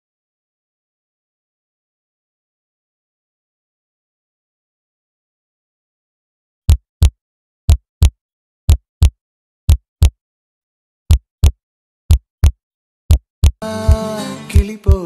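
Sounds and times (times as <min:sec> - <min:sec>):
heartbeat double thumps: 0:06.7 - 0:10.2, 0:11.1 - 0:15.0
music: 0:13.6 - 0:15.0.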